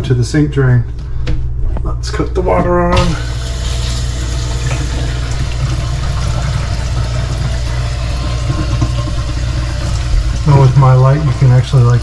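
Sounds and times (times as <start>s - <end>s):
water draining down pipe: 3.0s - 12.0s.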